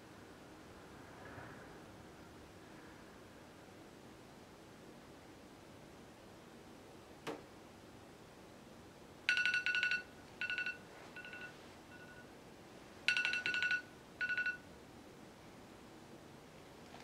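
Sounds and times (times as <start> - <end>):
timer alarm beeps: 9.3 - 12.3, 13.1 - 14.6.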